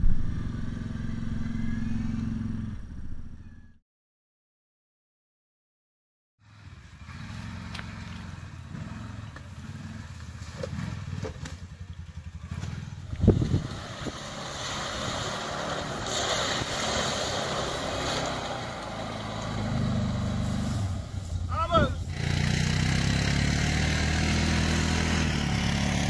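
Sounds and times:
off-road vehicle engine: 0:00.0 - 0:03.8, 0:06.4 - 0:26.0
hiss of churned mud and water: 0:13.4 - 0:21.5.

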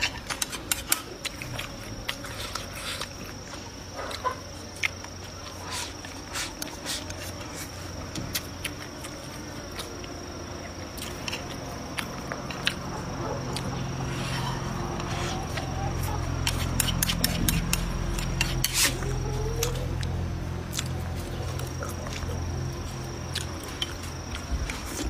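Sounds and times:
chewing and lip smacks: 0:00.1 - 0:14.1, 0:19.5 - 0:25.0.

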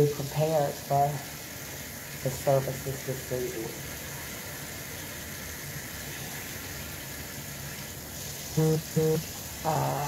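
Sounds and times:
person speaking: 0:00.0 - 0:01.3, 0:02.2 - 0:03.9, 0:08.5 - 0:10.0
steady background hiss: 0:00.0 - 0:10.0.

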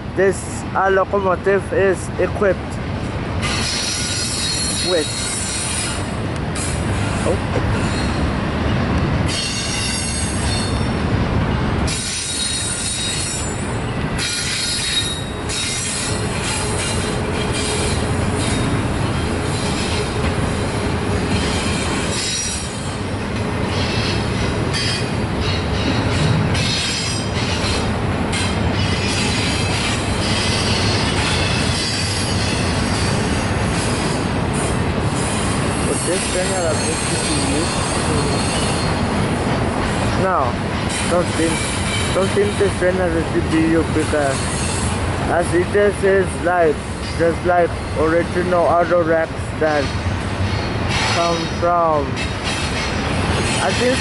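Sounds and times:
train wheels rumbling on rail: 0:00.0 - 0:54.0
high-pitched wheel squeals: 0:03.4 - 0:08.3, 0:09.3 - 0:11.0, 0:11.9 - 0:18.8, 0:19.4 - 0:23.0, 0:35.2 - 0:39.1, 0:44.0 - 0:45.0.

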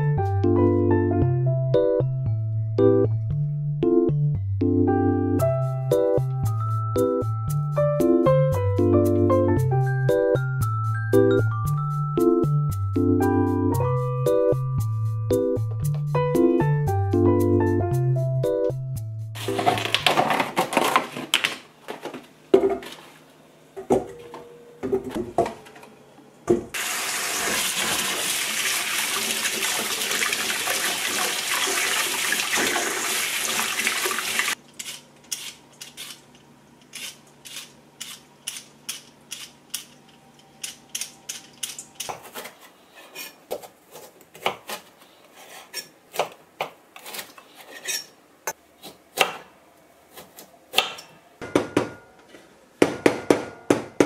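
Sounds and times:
kitchen tap running: 0:26.7 - 0:34.6.

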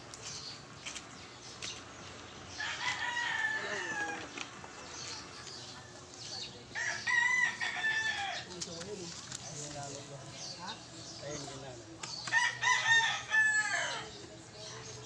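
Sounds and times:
rooster crowing: 0:02.6 - 0:04.3, 0:12.3 - 0:14.1.

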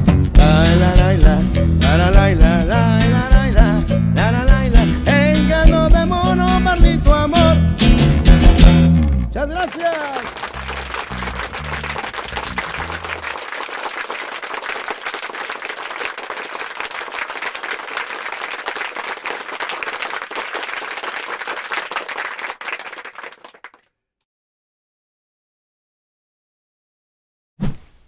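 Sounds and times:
band playing low notes: 0:00.0 - 0:13.4
crowd applauding: 0:09.4 - 0:23.8.

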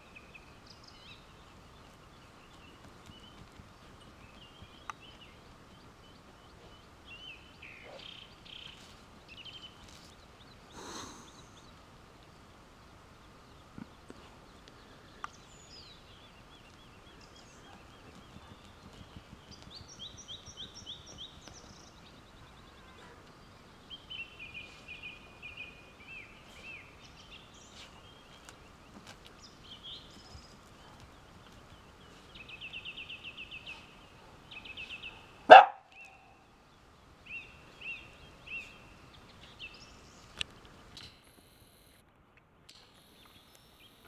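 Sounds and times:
birds chirping: 0:00.0 - 0:42.0, 0:42.8 - 0:44.0
dog barking: 0:35.1 - 0:36.2.

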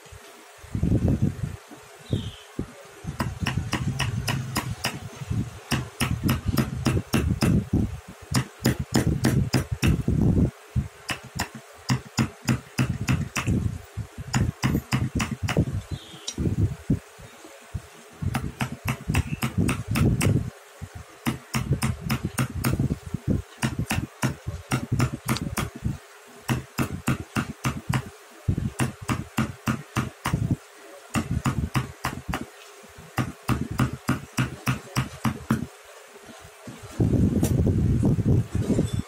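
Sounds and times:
chisel tapping into wood: 0:03.2 - 0:05.0, 0:11.1 - 0:13.6, 0:14.4 - 0:15.6, 0:18.3 - 0:20.3, 0:23.6 - 0:25.8, 0:26.5 - 0:28.1, 0:33.2 - 0:35.7.

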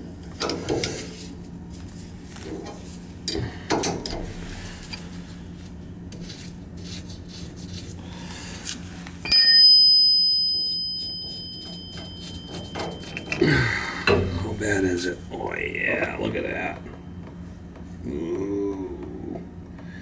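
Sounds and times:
steady low hum: 0:00.0 - 0:20.0
metal clicks and knocks: 0:02.6 - 0:04.3
sharp metallic ring: 0:09.2 - 0:15.6.

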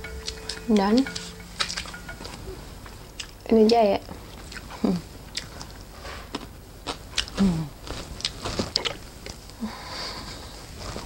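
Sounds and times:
person chewing: 0:02.8 - 0:03.5, 0:04.3 - 0:09.4.

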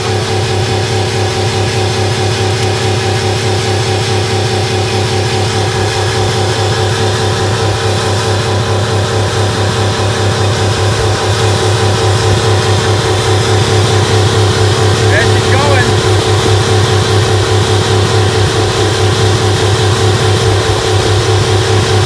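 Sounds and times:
car engine running: 0:00.0 - 0:22.0.

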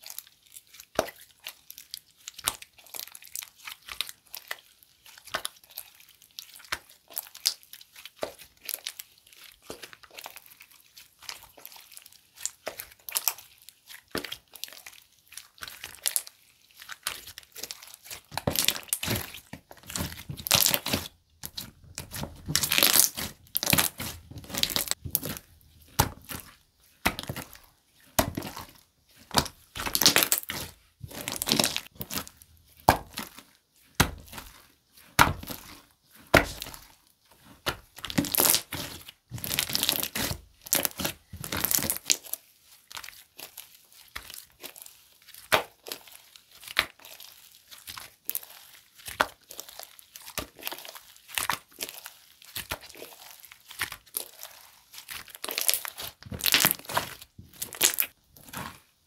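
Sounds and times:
slime crackling: 0:00.0 - 0:59.0.

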